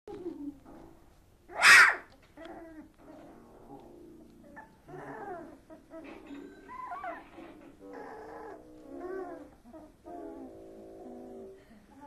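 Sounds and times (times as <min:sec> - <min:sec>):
puppy shrill squeal: 0:01.5 - 0:02.0, 0:06.7 - 0:07.3
puppies whimpering and squeaking: 0:04.4 - 0:10.5.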